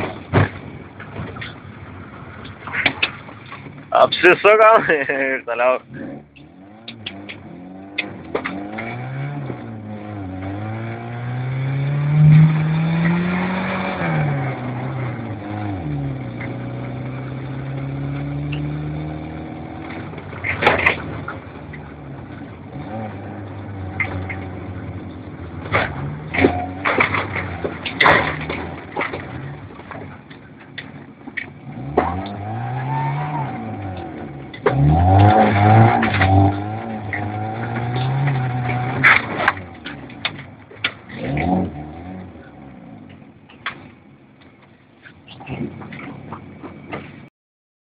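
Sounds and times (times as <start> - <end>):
knocks and rattles: 0.0 - 3.9, 19.8 - 22.7, 23.5 - 32.3, 34.0 - 41.4, 43.1 - 47.3
vehicle engine revving: 0.0 - 44.1.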